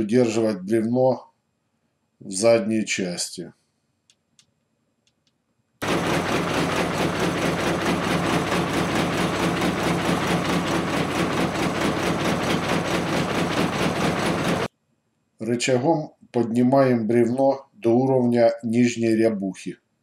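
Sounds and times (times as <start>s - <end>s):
gang saw running: 5.8s - 14.7s.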